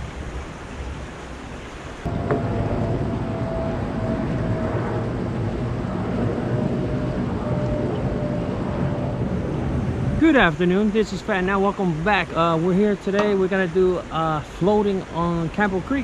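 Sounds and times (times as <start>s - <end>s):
wind rumbling on microphone: 0.0s - 16.0s
creek running over rocks: 10.2s - 16.0s.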